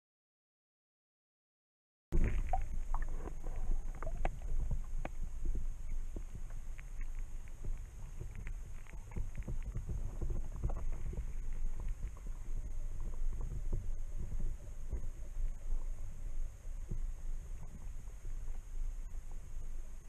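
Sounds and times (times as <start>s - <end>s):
small irregular clicks and taps: 2.2s - 15.2s
faint high whine: 2.2s - 20.0s
muffled underwater rumble: 2.2s - 20.0s.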